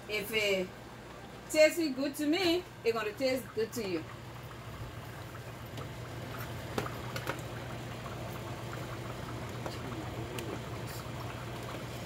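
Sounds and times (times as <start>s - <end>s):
steady low hum: 0.0s - 12.0s
soup simmering and bubbling: 3.5s - 12.0s.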